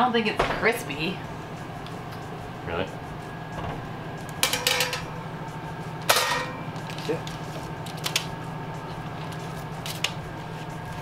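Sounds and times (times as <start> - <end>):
steady low hum: 0.0 - 11.0
metal baking sheet clattering: 4.4 - 5.1, 6.1 - 6.6.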